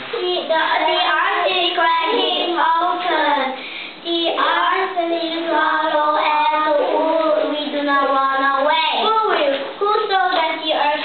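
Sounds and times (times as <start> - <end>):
children singing: 0.4 - 3.5.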